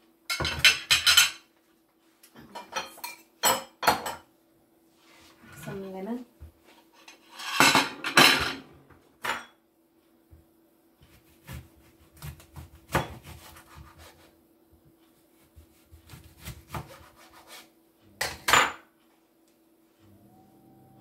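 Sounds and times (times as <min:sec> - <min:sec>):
faint steady hum: 0:00.0 - 0:21.0
knife cutting lemon on board: 0:11.0 - 0:14.3, 0:15.4 - 0:17.7.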